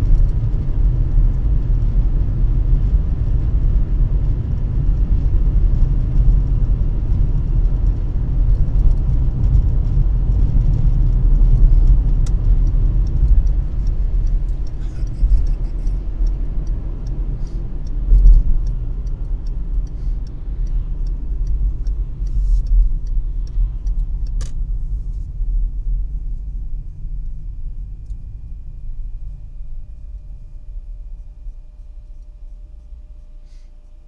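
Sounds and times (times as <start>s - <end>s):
car engine and road rumble: 0.0s - 34.0s
quick regular ticking: 11.6s - 24.6s.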